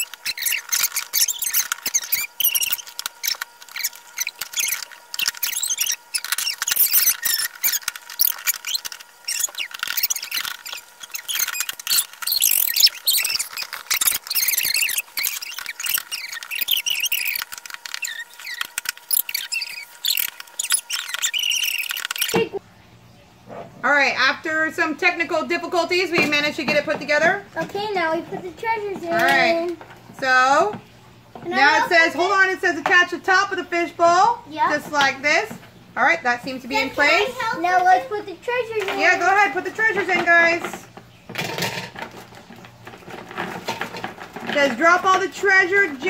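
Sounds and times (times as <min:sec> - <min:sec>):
plastic parts clicking and rattling: 0:00.0 - 0:22.6, 0:38.7 - 0:46.0
sped-up squeaky voices: 0:00.0 - 0:22.6.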